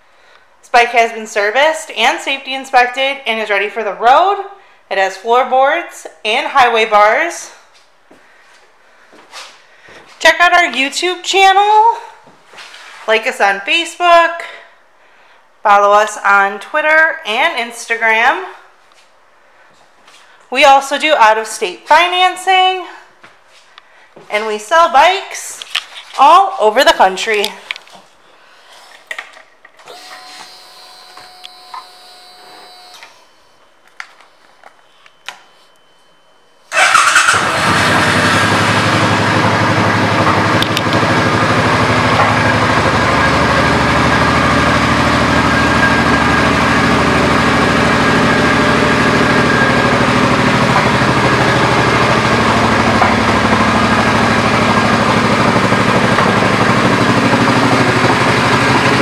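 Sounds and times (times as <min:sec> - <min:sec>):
motorcycle engine idling: 0:36.8 - 0:59.0.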